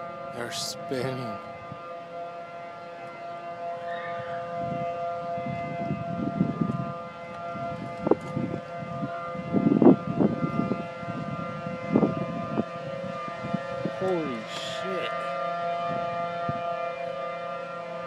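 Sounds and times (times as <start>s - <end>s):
warning siren steady tone: 0.0s - 18.0s.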